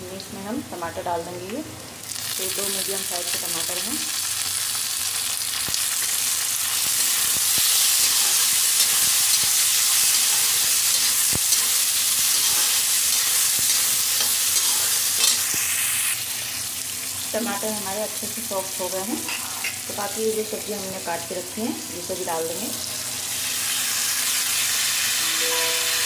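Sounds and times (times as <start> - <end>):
vegetables sizzling in hot oil: 0.9 - 26.0
metal spatula scraping pan: 7.7 - 15.5.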